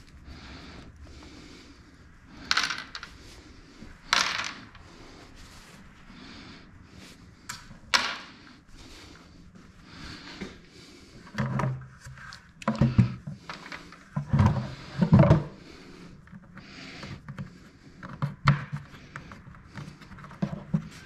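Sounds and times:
hard objects clattering: 2.4s - 3.3s, 4.1s - 4.8s.

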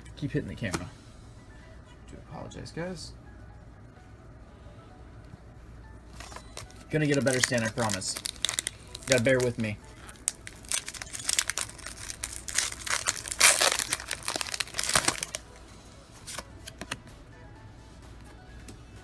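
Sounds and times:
foil wrapper tearing and crinkling: 6.2s - 15.4s.

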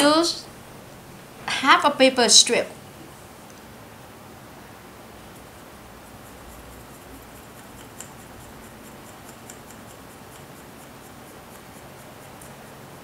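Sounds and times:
low steady hiss: 0.0s - 13.0s
paper strip ticking as it rolls: 5.3s - 13.0s.

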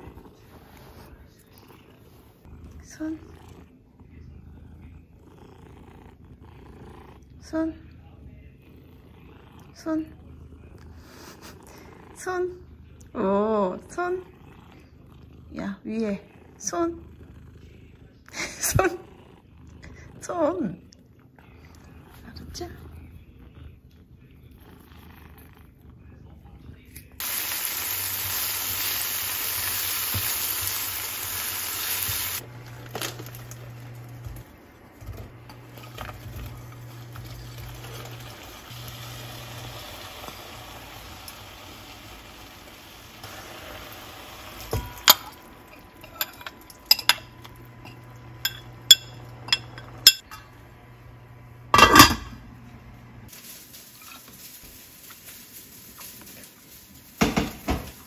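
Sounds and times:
tofu sizzling in a pan: 27.2s - 32.4s, 37.6s - 45.7s, 53.3s - 58.0s
utensils clinking against pan: 44.6s - 50.6s, 51.7s - 52.4s.

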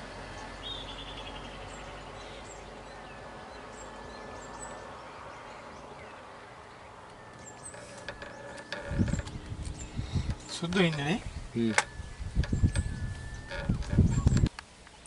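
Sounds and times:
bird chirps: 0.0s - 15.0s
insects buzzing: 3.6s - 15.0s
rapid trilling call: 7.2s - 14.5s.

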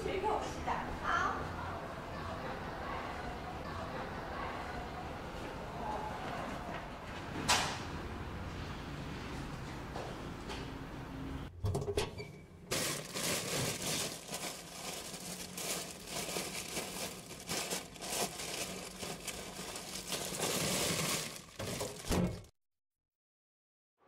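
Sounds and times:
crackling rustling and crinkling: 12.7s - 22.5s.

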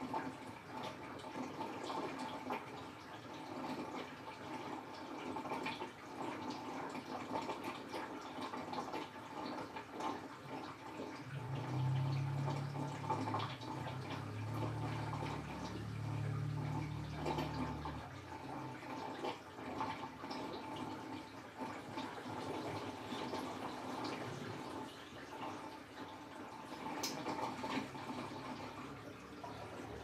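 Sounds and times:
water sloshing in washing machine: 0.0s - 30.0s
low motor hum: 11.2s - 19.2s.

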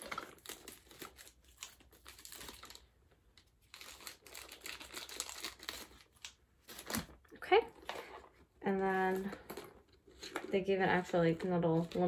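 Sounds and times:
scissors snipping plastic wrapping: 3.7s - 7.1s.

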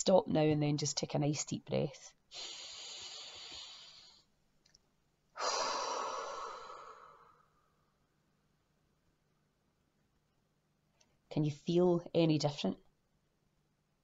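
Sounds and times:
woman breathing in and out: 2.3s - 4.4s, 5.3s - 8.0s.

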